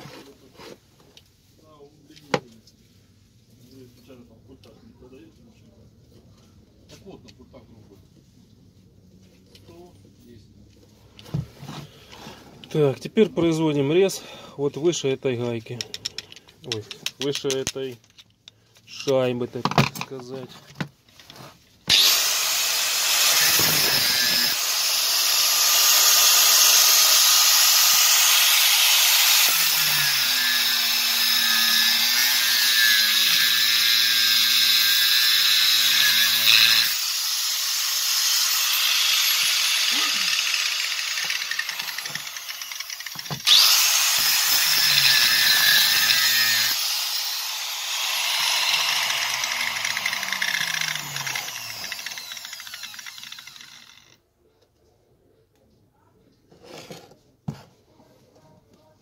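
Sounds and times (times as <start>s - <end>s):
angle grinder cutting steel: 21.9s - 54.2s
grinder disc spinning down: 38.2s - 54.2s.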